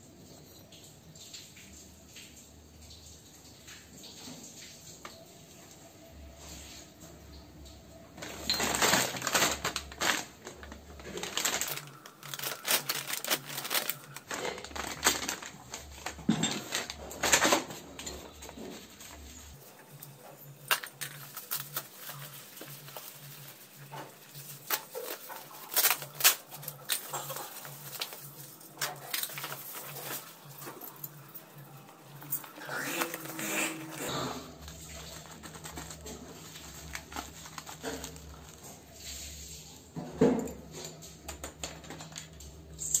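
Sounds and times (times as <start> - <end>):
clicks and rustles of unpacking: 8.2 - 39.0, 40.0 - 43.0
plastic packaging crinkling: 8.2 - 39.4.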